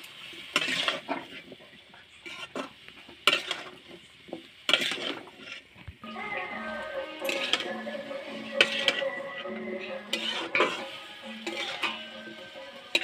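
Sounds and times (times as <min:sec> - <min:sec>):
oil sizzling: 0:00.0 - 0:13.0
metal spatula scraping pan: 0:00.5 - 0:01.6, 0:02.2 - 0:04.0, 0:04.7 - 0:05.7, 0:06.5 - 0:13.0
spatula clanking against pan: 0:07.2 - 0:07.8, 0:08.5 - 0:13.0.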